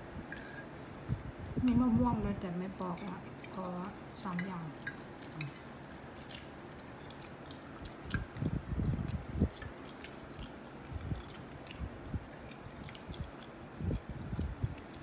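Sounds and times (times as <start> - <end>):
person chewing food: 4.8 - 15.0.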